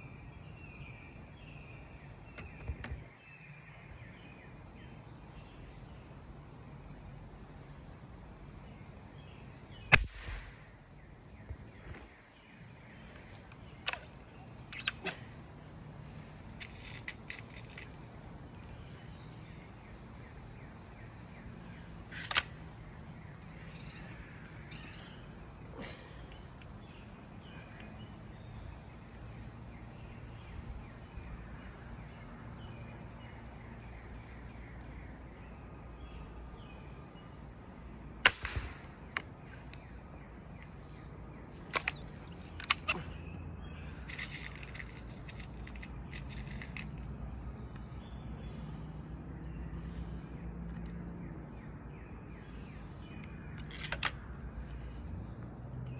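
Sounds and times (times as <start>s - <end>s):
bird chirping: 0.0s - 55.9s
pellet rifle shots: 9.9s - 10.7s, 38.2s - 39.2s
small clicks: 44.1s - 47.1s, 53.2s - 54.3s.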